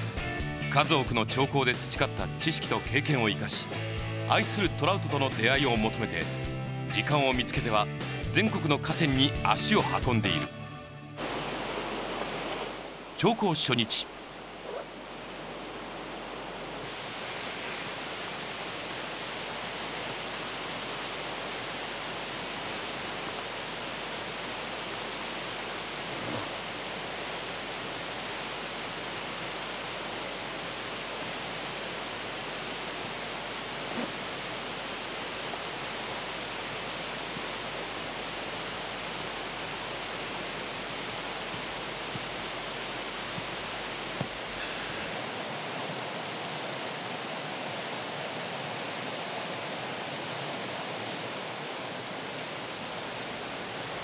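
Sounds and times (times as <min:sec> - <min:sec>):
river rushing over rapids: 0:11.2 - 0:54.0.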